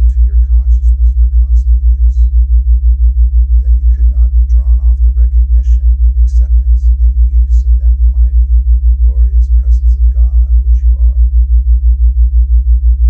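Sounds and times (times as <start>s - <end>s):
faint voice: 0.0s - 2.3s, 3.5s - 8.5s, 9.1s - 11.3s
pulsing low hum: 0.0s - 13.0s.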